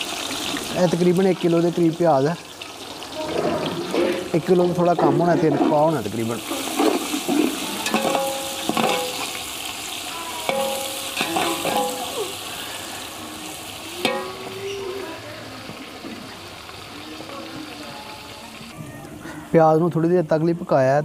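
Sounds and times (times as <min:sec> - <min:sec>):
onions sizzling in oil: 0:00.0 - 0:18.8
spatula scraping a pot: 0:03.3 - 0:09.4
pot ringing: 0:07.8 - 0:09.5, 0:10.4 - 0:12.4, 0:14.0 - 0:14.9.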